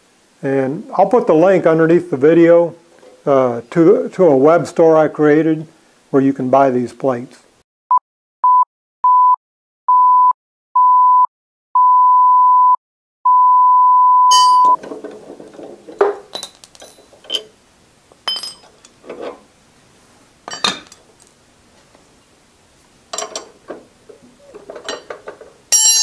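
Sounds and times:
metal parts and tools clinking: 14.3s - 19.5s, 20.4s - 21.4s, 23.1s - 26.0s.

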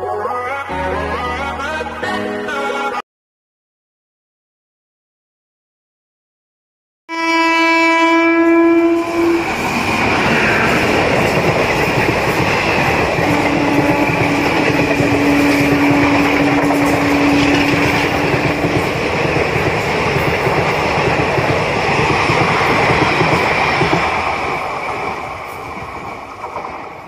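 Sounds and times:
locomotive horn: 7.1s - 9.8s, 13.3s - 18.4s
train wheels rumbling and clattering: 9.1s - 27.0s.

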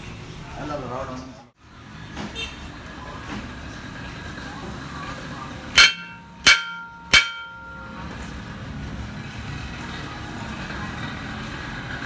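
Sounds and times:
strikes on ringing steel plate: 5.8s - 8.2s.

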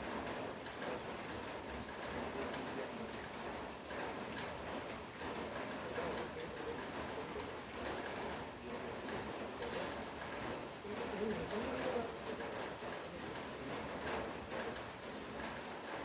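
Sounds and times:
steady rain hiss: 0.0s - 16.0s
raindrops ticking: 0.1s - 16.0s.

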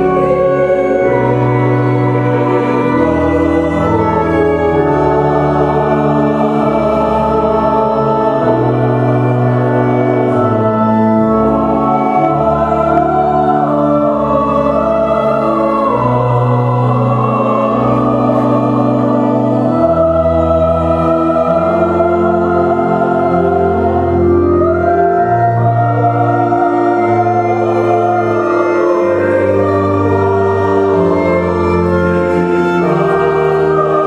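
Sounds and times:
mixed choir singing a hymn: 0.0s - 34.0s
organ chords: 0.0s - 34.0s.

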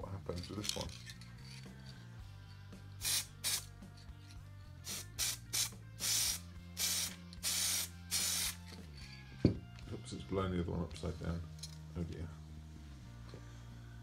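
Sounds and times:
aerosol spray paint hissing: 3.0s - 3.8s, 4.8s - 8.6s.

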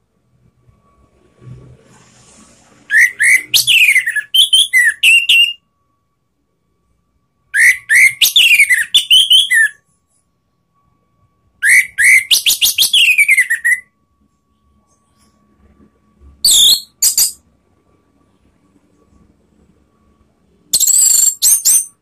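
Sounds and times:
thrush singing whistled notes: 2.8s - 5.7s, 7.4s - 9.8s, 11.6s - 14.0s, 16.4s - 17.4s, 20.7s - 22.0s.

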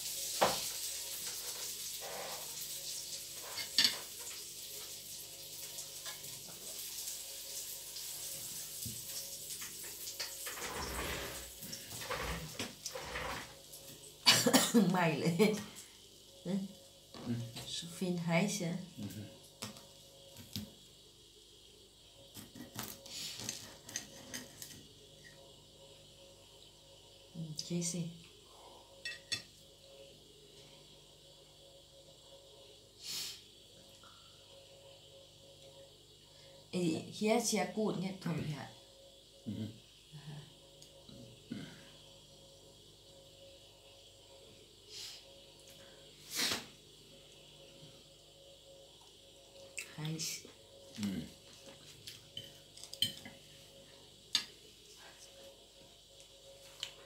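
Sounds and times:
food sizzling on a grill: 0.0s - 17.4s, 22.2s - 25.3s, 33.0s - 33.6s, 46.1s - 46.8s, 50.9s - 54.6s
cutlery clinking on a plate: 29.0s - 29.5s, 52.4s - 53.3s.

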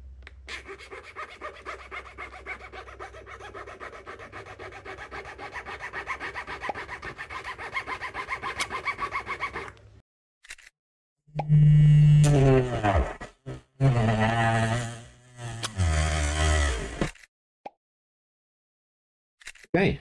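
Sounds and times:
hand file rasping: 0.5s - 9.8s.

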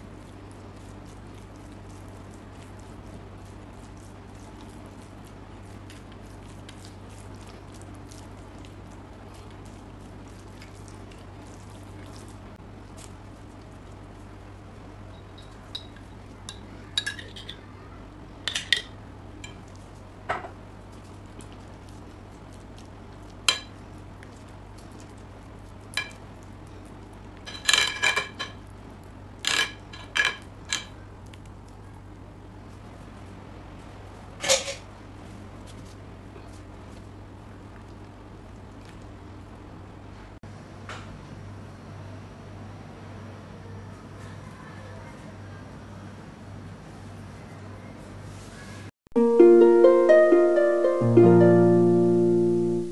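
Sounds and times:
soft wet squishing: 0.0s - 18.1s, 19.4s - 27.4s, 30.9s - 34.2s, 35.2s - 39.8s
steady low hum: 0.0s - 52.9s.

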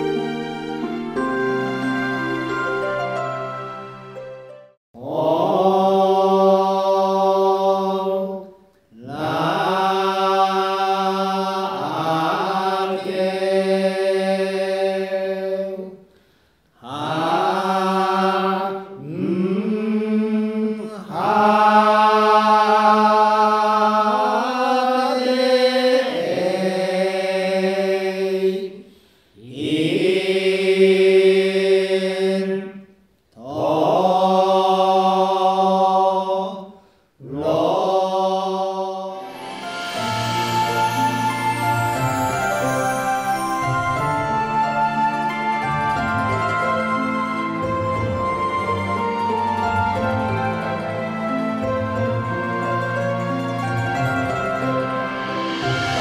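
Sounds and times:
person chanting: 5.0s - 16.0s, 16.8s - 32.8s, 33.4s - 47.6s
breaths: 16.0s - 16.8s, 28.8s - 29.4s, 36.7s - 37.2s.

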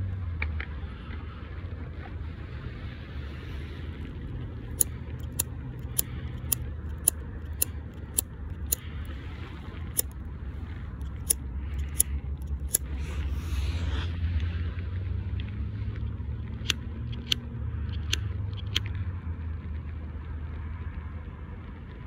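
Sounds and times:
steady low rumble: 0.0s - 22.0s
lighter clicking: 4.8s - 8.8s, 11.0s - 12.9s.

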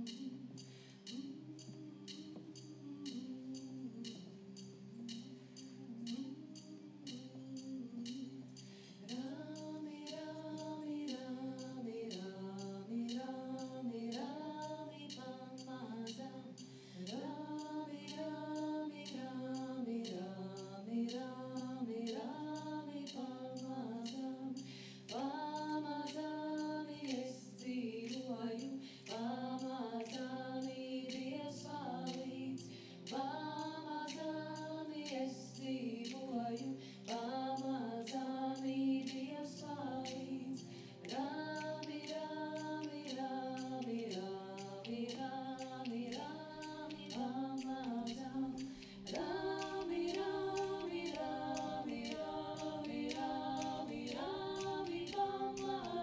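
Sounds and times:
faint percussive ticks: 0.0s - 56.0s
women singing folk song: 0.0s - 56.0s
steady held drone: 45.8s - 56.0s.

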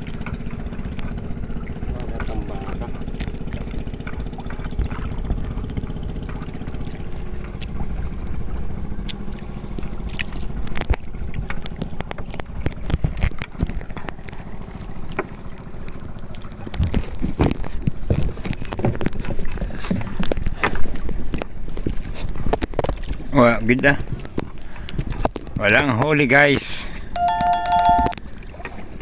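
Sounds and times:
small boat engine running: 0.0s - 11.7s.

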